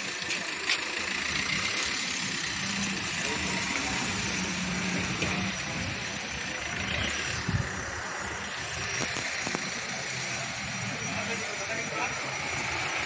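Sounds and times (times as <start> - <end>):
street noise: 0.0 - 13.0
vehicle engine running: 0.0 - 13.0.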